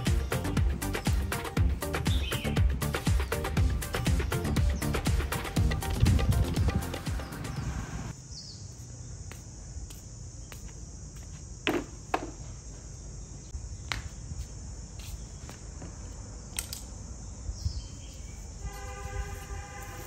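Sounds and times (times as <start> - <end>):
high insect drone: 0.0 - 20.0.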